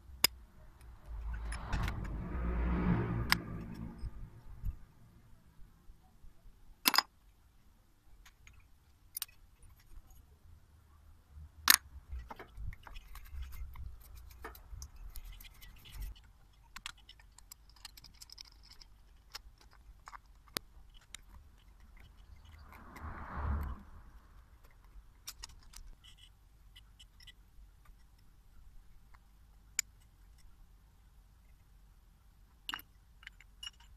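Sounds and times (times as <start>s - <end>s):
metal parts clicking and knocking: 6.8s - 7.1s, 8.2s - 10.2s, 11.6s - 23.0s, 24.6s - 28.3s, 32.5s - 33.9s.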